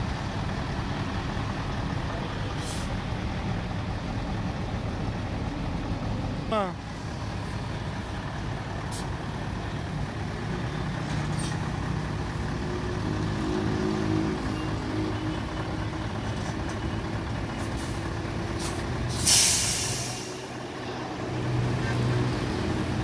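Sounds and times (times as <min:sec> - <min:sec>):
truck diesel engine running: 0:00.0 - 0:23.0
short air hisses: 0:18.6 - 0:20.5
loud compressed air hiss: 0:19.1 - 0:20.5.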